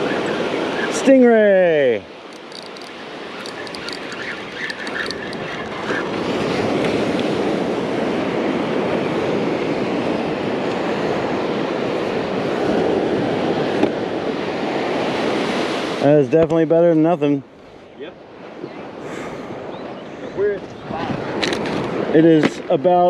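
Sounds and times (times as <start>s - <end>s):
wind rushing over microphone: 17.4s - 22.2s.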